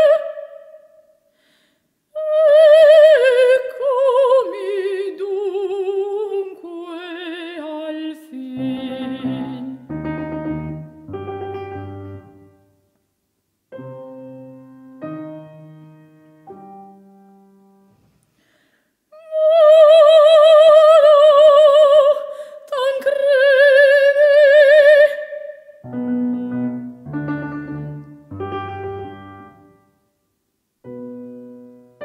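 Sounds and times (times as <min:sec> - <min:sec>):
woman singing operatically: 0:00.0 - 0:00.9, 0:02.2 - 0:10.0, 0:19.1 - 0:25.7
piano chords: 0:08.5 - 0:12.8, 0:13.7 - 0:18.0, 0:25.8 - 0:30.0, 0:30.8 - 0:32.0.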